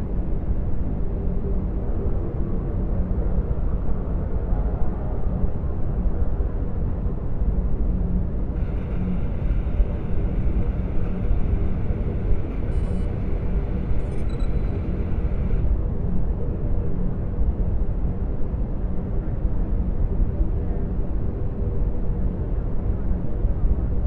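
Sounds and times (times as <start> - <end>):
electronic chirps: 14.0 - 14.9.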